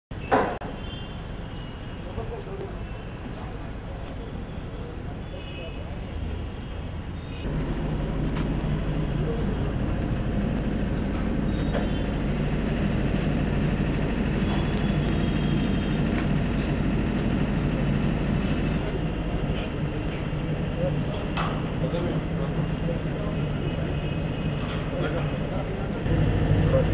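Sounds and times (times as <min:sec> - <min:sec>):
engine droning: 0:07.1 - 0:26.9.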